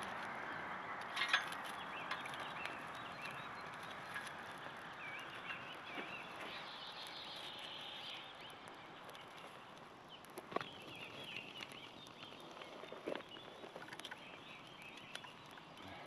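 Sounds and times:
birds chirping: 0.0s - 16.0s
sticks cracking on campfire: 0.0s - 16.0s.

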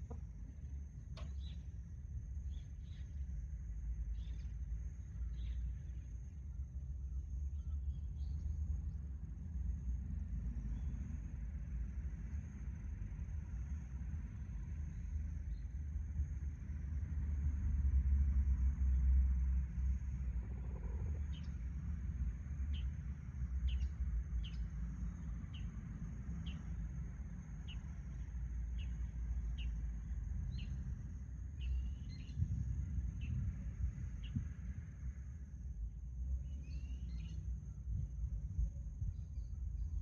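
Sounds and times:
steady low rumble: 0.0s - 40.0s
small bird chirping: 1.2s - 1.7s, 2.4s - 3.3s, 20.5s - 21.6s, 23.6s - 24.7s, 25.5s - 25.7s, 27.6s - 29.8s, 30.5s - 30.8s, 31.6s - 32.4s, 36.4s - 37.5s.

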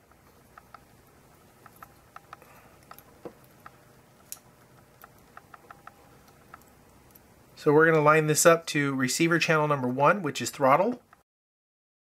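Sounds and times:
small clicks of handled circuit parts: 0.0s - 7.3s.

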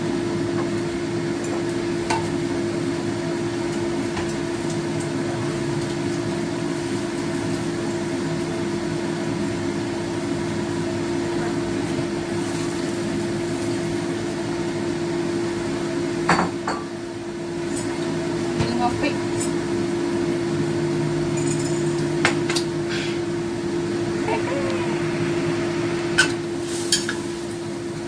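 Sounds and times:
motor humming: 23.8s - 26.2s.

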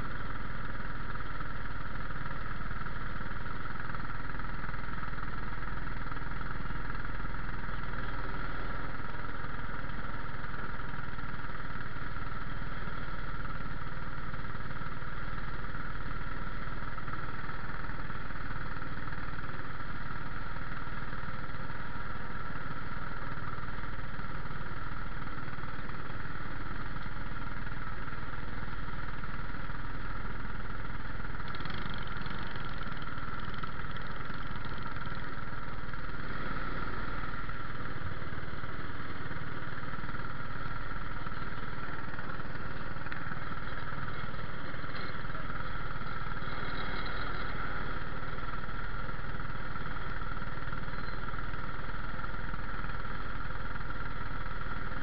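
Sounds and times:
small engines idling: 0.0s - 55.0s.

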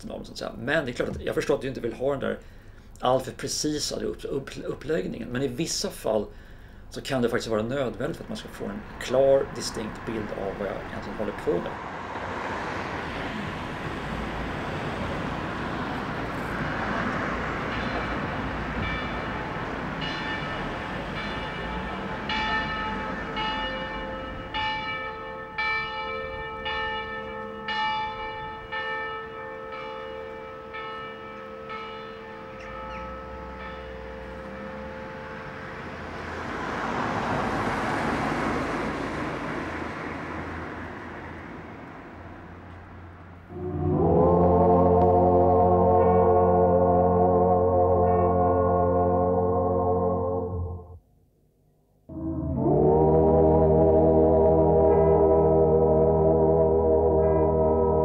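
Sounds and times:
distant city noise: 4.1s - 51.0s, 51.6s - 58.0s
bells ringing: 16.8s - 36.7s, 43.5s - 50.6s, 54.7s - 58.0s.

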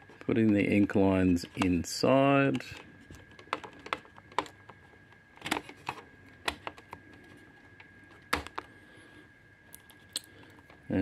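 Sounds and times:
plastic parts clicking: 0.1s - 1.8s, 2.4s - 8.7s.

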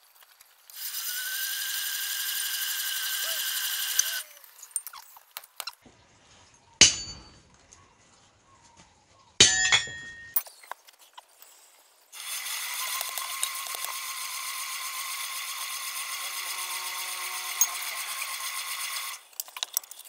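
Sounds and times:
hammer ringing on anvil: 6.8s - 7.3s, 9.4s - 10.4s.

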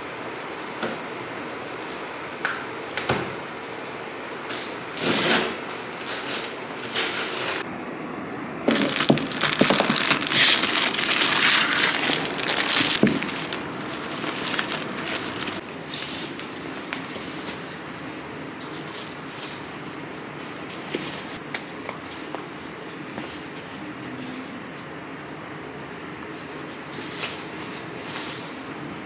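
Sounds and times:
plastic packaging crinkling: 8.7s - 15.6s.

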